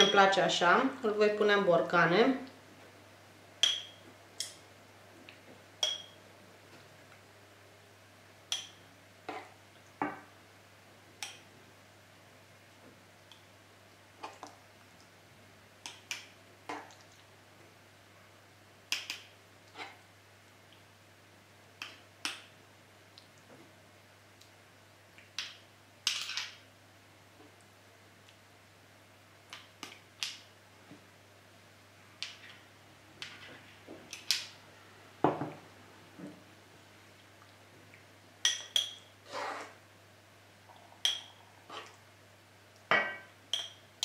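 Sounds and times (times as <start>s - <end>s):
spoon tapping a glass jar: 3.6s - 4.0s, 5.8s - 6.2s, 43.0s - 43.8s
spatula tapping glass jar: 5.8s - 6.2s.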